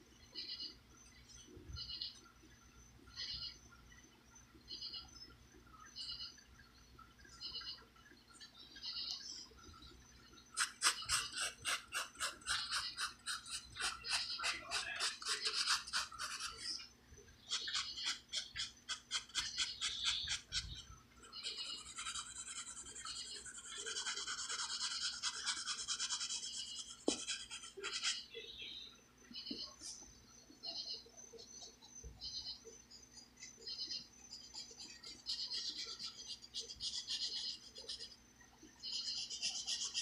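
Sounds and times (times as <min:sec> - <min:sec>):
pencil scratching on paper: 0:10.6 - 0:16.8, 0:21.4 - 0:28.2, 0:35.3 - 0:38.1, 0:38.8 - 0:40.0.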